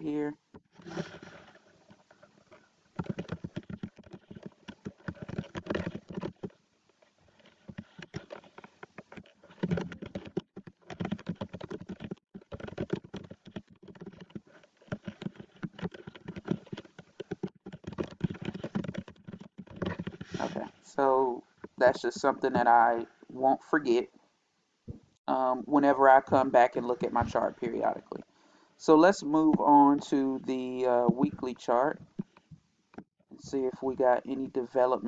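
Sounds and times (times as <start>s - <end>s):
typing on computer keyboard: 3.0s - 6.5s, 7.7s - 20.4s.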